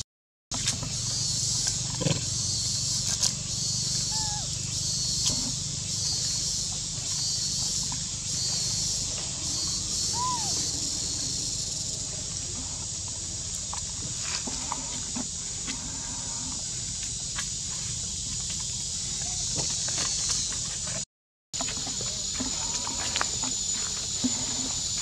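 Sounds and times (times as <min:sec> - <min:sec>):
high outdoor hiss: 0:00.6 - 0:21.0
rising and falling animal calls: 0:04.0 - 0:04.6, 0:09.4 - 0:11.5.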